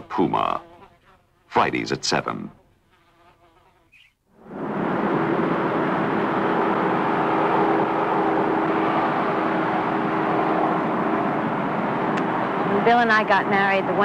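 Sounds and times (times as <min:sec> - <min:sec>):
outdoor traffic noise: 0:03.9 - 0:14.0.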